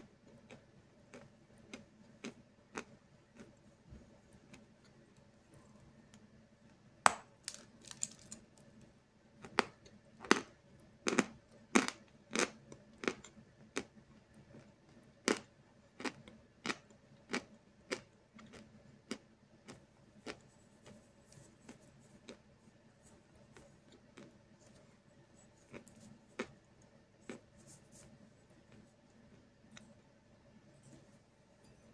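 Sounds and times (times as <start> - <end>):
chalk being bitten and chewed: 25.4 - 26.6, 27.2 - 28.9.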